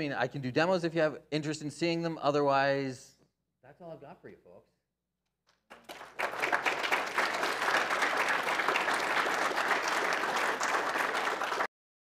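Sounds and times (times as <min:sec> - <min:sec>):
audience applauding: 0:05.7 - 0:11.7.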